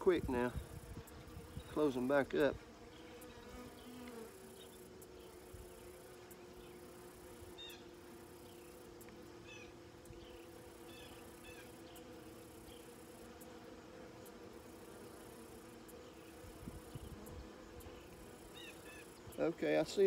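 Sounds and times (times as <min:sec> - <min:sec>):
honeybees buzzing: 0:00.0 - 0:20.0.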